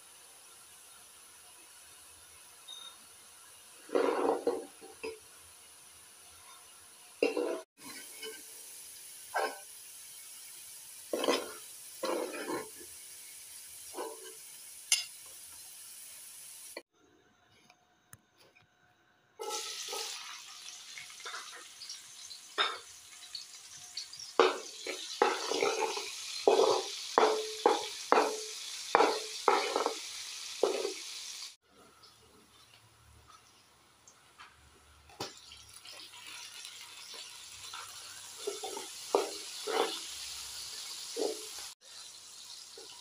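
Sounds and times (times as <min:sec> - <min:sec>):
onion sizzling in oil: 0:00.0 - 0:16.9, 0:19.4 - 0:43.0
stirring scrapes in pan: 0:03.8 - 0:05.1, 0:11.1 - 0:12.9, 0:24.4 - 0:32.7, 0:36.2 - 0:41.8.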